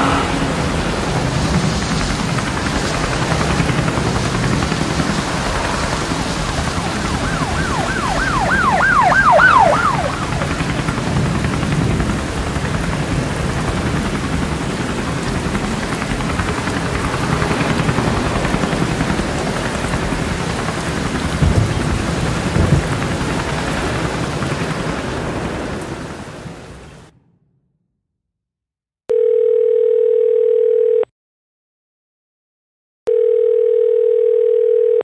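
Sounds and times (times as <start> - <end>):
heavy rain: 0.0 - 27.1
thunder claps: 0.0 - 27.1.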